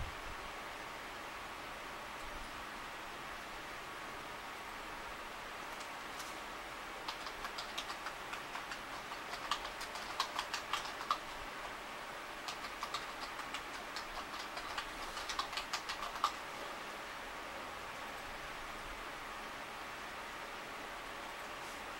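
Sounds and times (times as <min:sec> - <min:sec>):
keyboard typing: 0:07.0 - 0:11.5, 0:12.4 - 0:16.5.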